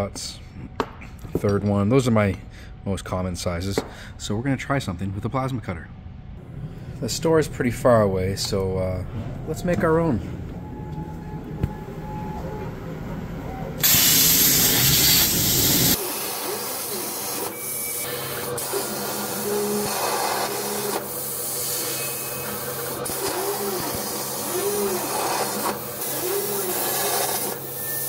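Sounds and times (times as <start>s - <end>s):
low steady hum: 0.0s - 13.8s
plasma cutter hissing: 13.8s - 28.0s.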